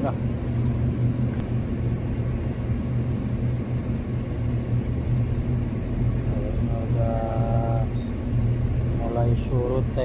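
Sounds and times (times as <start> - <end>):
engine droning: 0.0 - 10.0.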